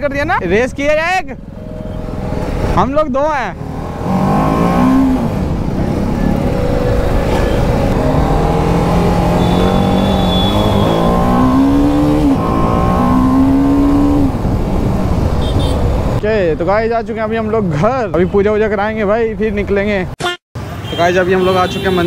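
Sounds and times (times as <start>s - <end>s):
motorcycle engine accelerating: 3.6s - 16.1s.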